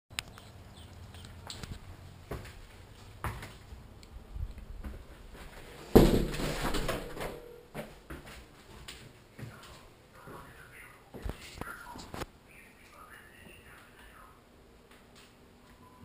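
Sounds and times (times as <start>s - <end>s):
door thumping shut: 5.9s - 7.4s.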